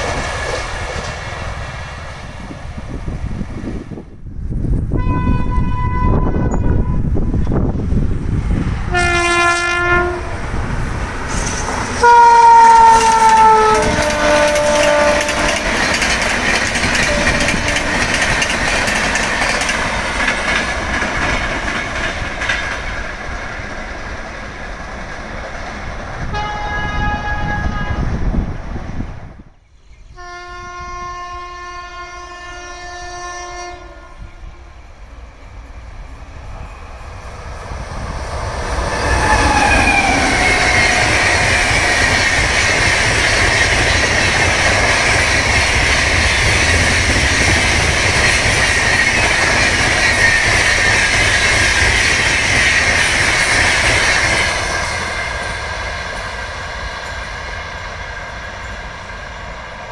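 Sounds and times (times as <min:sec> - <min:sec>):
train coaches rumbling and rattling: 0:00.0 - 0:29.6, 0:30.8 - 0:59.9
locomotive horn: 0:05.0 - 0:07.2, 0:08.9 - 0:10.4, 0:12.0 - 0:15.8, 0:17.0 - 0:18.2, 0:26.3 - 0:28.2, 0:30.2 - 0:34.8.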